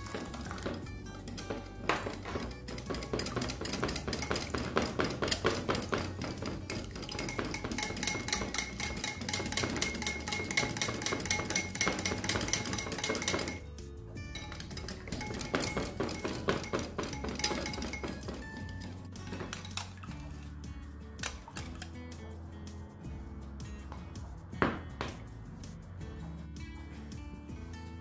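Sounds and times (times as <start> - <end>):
whisk beating in bowl: 0.0 - 13.6, 14.2 - 19.9.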